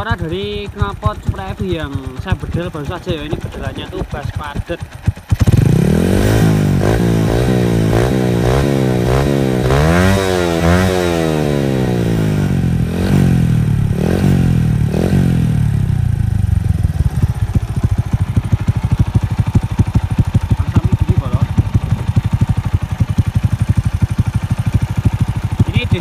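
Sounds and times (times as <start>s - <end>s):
motorcycle engine idling: 0.0s - 26.0s
motorcycle engine revving: 0.0s - 26.0s.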